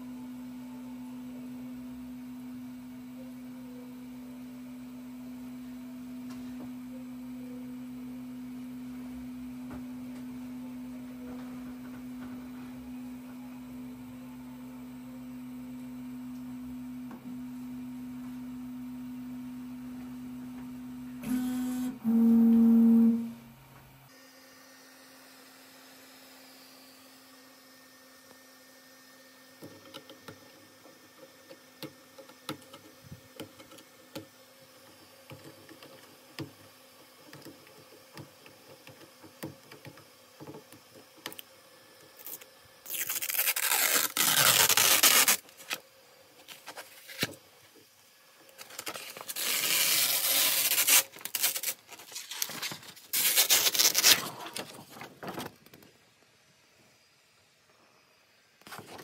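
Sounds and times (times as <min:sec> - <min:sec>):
plastic film crinkles and ticks: 0:42.2 - 0:45.8, 0:46.4 - 0:47.4, 0:48.5 - 0:55.9
plastic film tearing off: 0:42.2 - 0:45.8, 0:46.5 - 0:47.4, 0:48.5 - 0:55.6.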